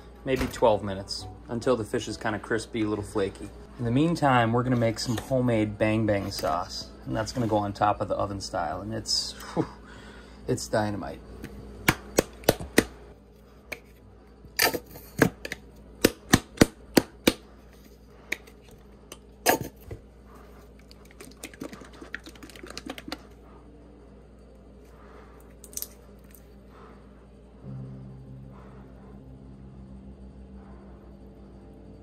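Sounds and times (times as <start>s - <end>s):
squeeze bottles clicking and knocking: 20.8s - 23.4s.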